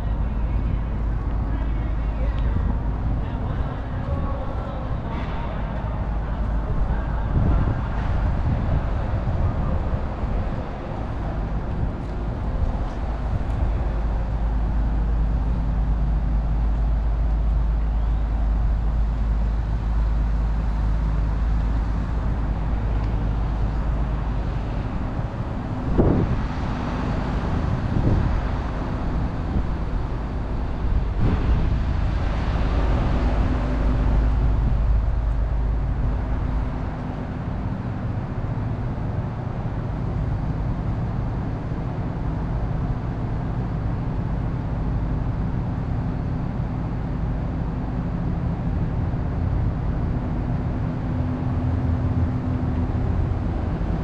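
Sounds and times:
vehicles passing: 0.0s - 39.4s
street traffic rumble: 0.0s - 54.0s.

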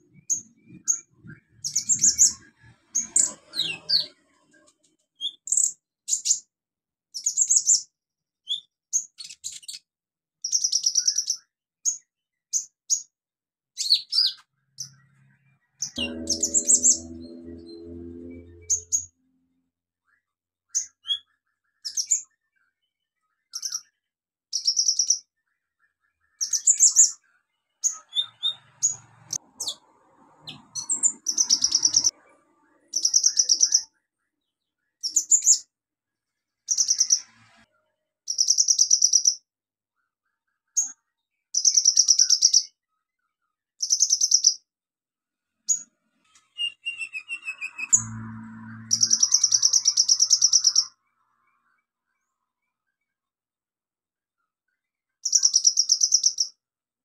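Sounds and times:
sunbird singing trilled phrases: 13.8s - 19.2s, 46.5s - 52.3s.

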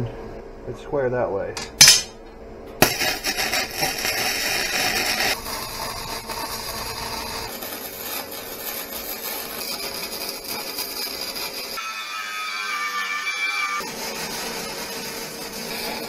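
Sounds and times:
arc welding crackling hiss: 2.8s - 11.8s.

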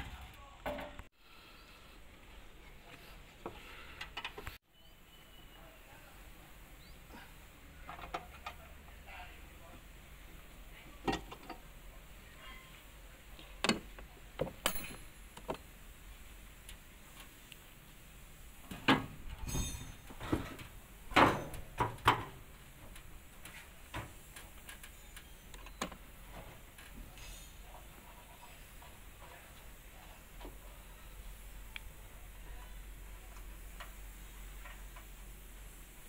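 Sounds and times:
metal clicks and knocks: 13.6s - 15.6s.

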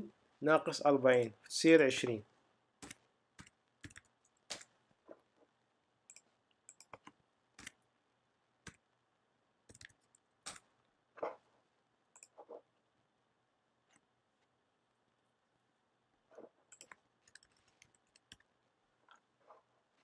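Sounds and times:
mouse and keyboard clicks: 6.1s - 7.8s, 12.2s - 12.6s, 16.4s - 18.5s.

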